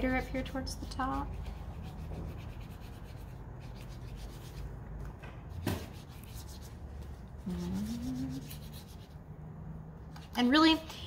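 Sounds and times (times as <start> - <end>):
brush scratching on paper: 0.0 - 4.7, 5.8 - 9.2.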